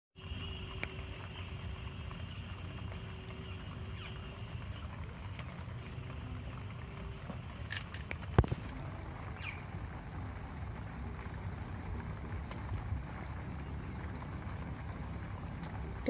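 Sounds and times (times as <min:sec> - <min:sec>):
insects chirping: 0:00.2 - 0:16.0
low rumble: 0:00.2 - 0:16.0
faint ticks: 0:10.4 - 0:16.0.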